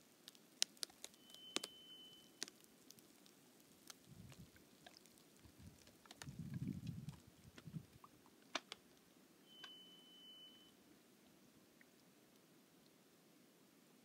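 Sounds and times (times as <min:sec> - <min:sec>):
ice clicking and popping: 0:00.2 - 0:09.0
ice creaking rumbles: 0:02.3 - 0:08.1.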